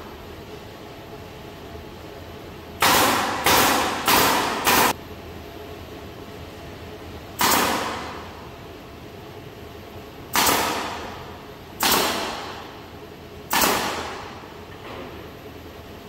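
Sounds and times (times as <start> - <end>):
nail gun firing: 2.8 - 5.0, 7.4 - 8.3, 10.3 - 12.7, 13.5 - 14.4.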